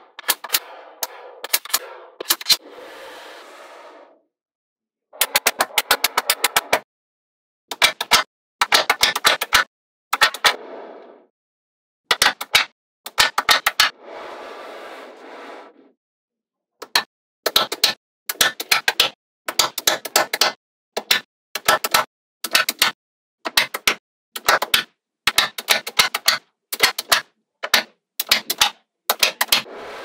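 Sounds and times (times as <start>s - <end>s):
magnetic balls clicking together: 16.8s - 29.7s.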